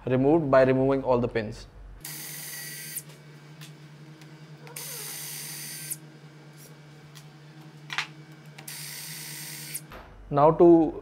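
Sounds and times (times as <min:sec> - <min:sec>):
battery drill running in bursts: 0:02.0 - 0:03.1, 0:04.5 - 0:06.8, 0:07.9 - 0:09.9.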